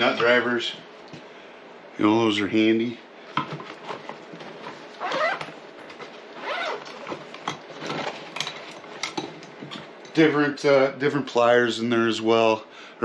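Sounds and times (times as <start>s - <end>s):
canvas fabric rustling: 4.0s - 5.4s, 6.3s - 8.3s
metal tools clinking: 7.5s - 10.2s.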